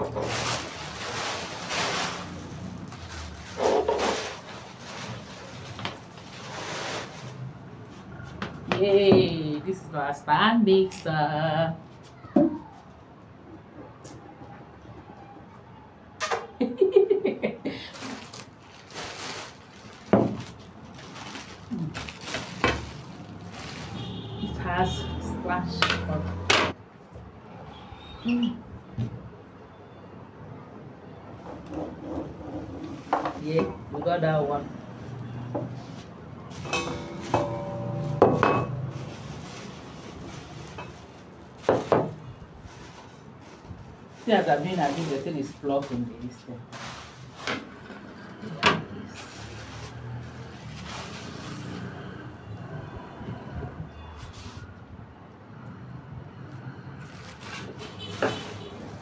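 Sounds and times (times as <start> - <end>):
plastic packaging crinkling: 0.0 - 7.5, 17.8 - 24.6, 38.8 - 46.0, 49.2 - 51.9, 57.0 - 59.0
metal bowl and whisk clanking: 36.6 - 38.8.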